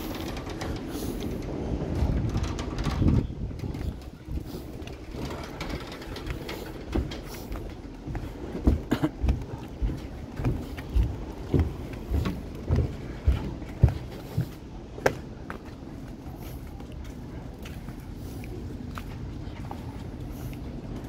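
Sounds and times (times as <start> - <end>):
footsteps on gangway: 0.0 - 21.0
street traffic hum: 0.0 - 21.0.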